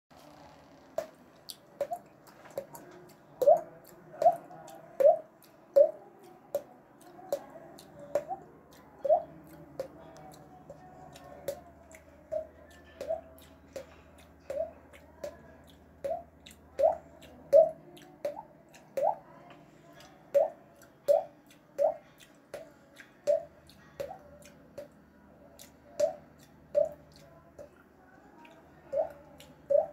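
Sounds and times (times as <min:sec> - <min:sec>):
mouth water-droplet pops: 0:01.0 - 0:06.0, 0:16.0 - 0:19.2, 0:20.4 - 0:22.0.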